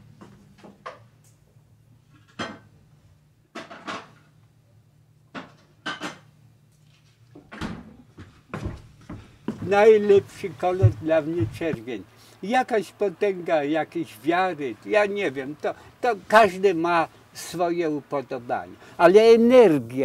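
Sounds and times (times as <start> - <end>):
dishes and pots clinking: 2.2 - 2.7, 5.3 - 6.3.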